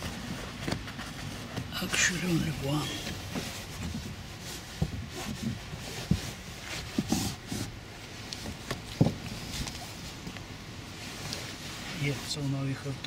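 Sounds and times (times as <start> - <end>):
car seat cushion thumps and knocks: 0.0 - 1.9, 3.0 - 9.8
rustling: 0.0 - 13.0.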